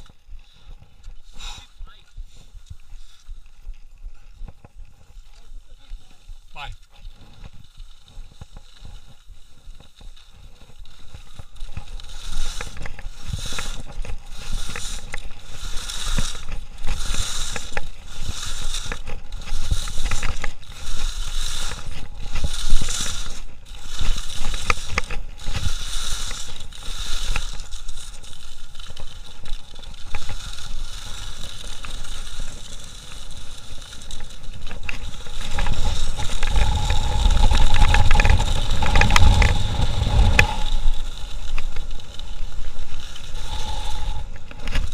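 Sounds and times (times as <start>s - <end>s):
skis scraping on snow: 0.0s - 44.9s
hiss of running skis: 0.4s - 3.5s, 10.4s - 44.9s
wind rumble on microphone: 34.0s - 44.9s.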